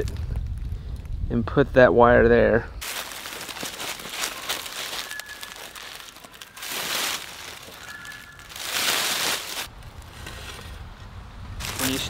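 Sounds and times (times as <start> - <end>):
leaves and wire mesh rustling: 2.8 - 10.9, 11.6 - 12.0.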